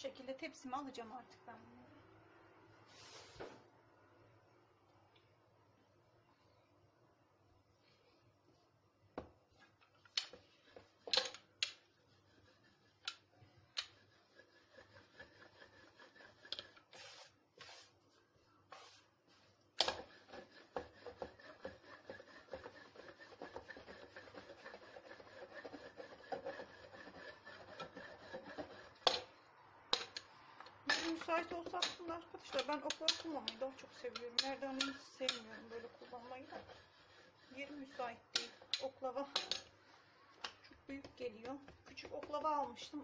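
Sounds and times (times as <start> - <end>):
rolling pin rubbing over board: 10.2 - 18.0, 18.7 - 29.3, 30.9 - 39.3.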